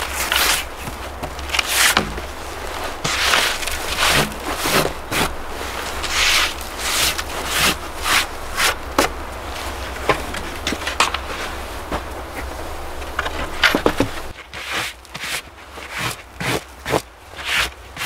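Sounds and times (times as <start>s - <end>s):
hand brushing snow off ski: 0.0s - 10.0s, 14.1s - 18.0s.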